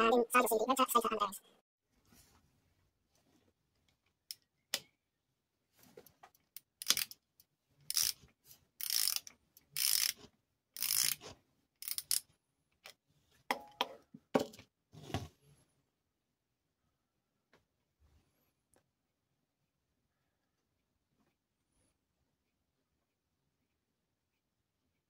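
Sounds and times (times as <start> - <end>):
ratchet wrench clicking: 6.8 - 7.2, 7.9 - 8.2, 8.8 - 10.2, 10.8 - 11.2, 11.8 - 12.2.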